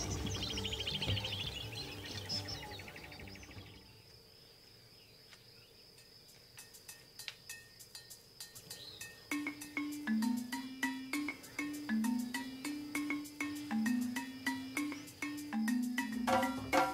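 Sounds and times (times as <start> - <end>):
background music: 0.0 - 3.8, 8.0 - 16.9
insect drone: 0.0 - 16.9
sharp ticks and chirps: 0.0 - 16.9.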